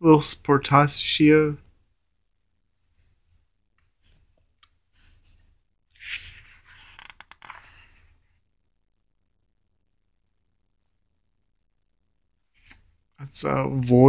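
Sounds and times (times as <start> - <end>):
paper pages rustling: 4.9 - 8.2
page flip crackles: 6.0 - 7.9.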